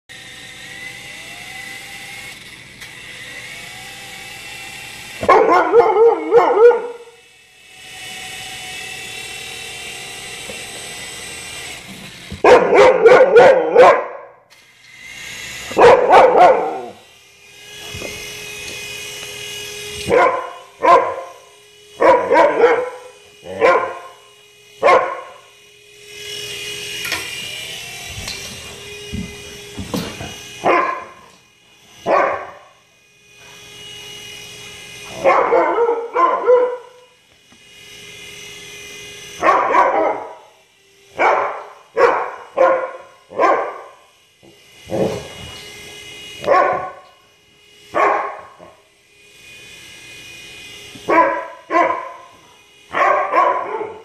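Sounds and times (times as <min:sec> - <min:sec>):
toy helicopter motor whine: 0:00.1 - 0:54.0
dog barking: 0:05.2 - 0:07.0, 0:12.4 - 0:14.3, 0:15.8 - 0:16.9, 0:20.1 - 0:21.3, 0:22.0 - 0:24.1, 0:24.8 - 0:25.3, 0:30.6 - 0:31.2, 0:32.1 - 0:32.6, 0:35.2 - 0:37.0, 0:39.4 - 0:40.4, 0:41.2 - 0:43.9, 0:46.5 - 0:47.0, 0:48.0 - 0:48.5, 0:51.1 - 0:52.3, 0:52.9 - 0:54.0.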